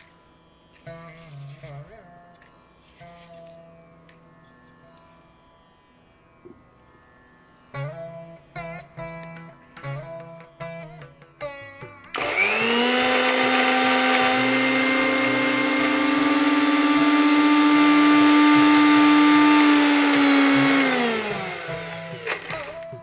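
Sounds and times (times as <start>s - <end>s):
mixer grinder motor grinding: 12.2s - 23.0s.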